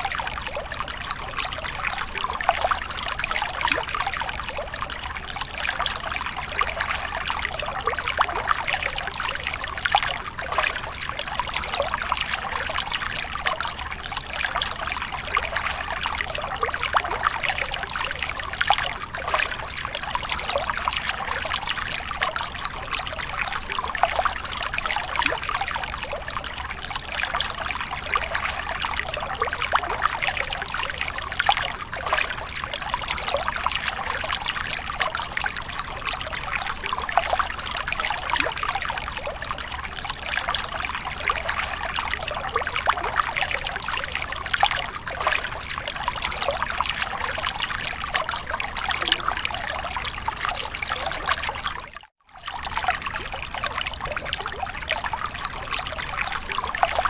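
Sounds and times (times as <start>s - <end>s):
water trickling into pool: 0.0s - 57.0s.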